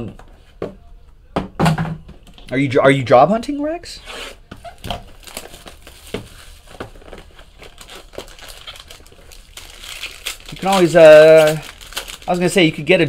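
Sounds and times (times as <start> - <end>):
plastic wrapper crinkling: 4.7 - 13.0.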